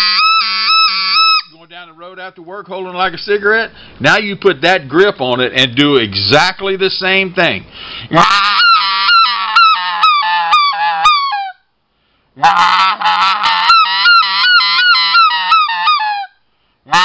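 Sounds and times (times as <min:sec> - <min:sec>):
goose call honking notes: 0:00.0 - 0:01.6, 0:08.1 - 0:11.5, 0:12.4 - 0:16.3.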